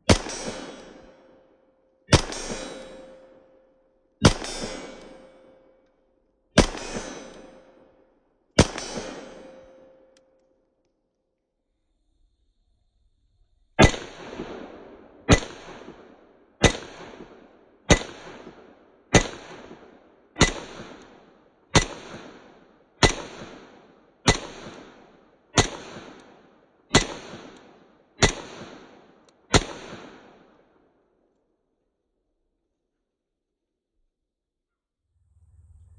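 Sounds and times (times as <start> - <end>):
pistol shots with echo: 0.0 - 1.2, 2.1 - 5.8, 6.6 - 7.9, 8.6 - 10.2, 13.8 - 30.7.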